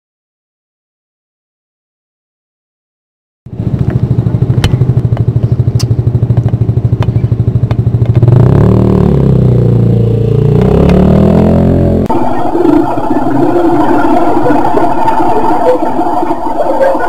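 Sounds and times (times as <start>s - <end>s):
motorcycle engine running: 3.5s - 16.1s.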